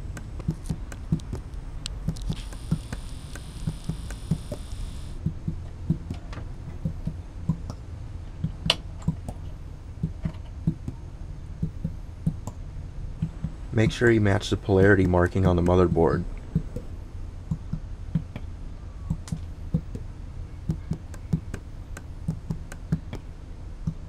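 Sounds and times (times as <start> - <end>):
low steady hum: 0.0 - 24.0
small clicks and taps: 0.1 - 7.8, 19.1 - 24.0.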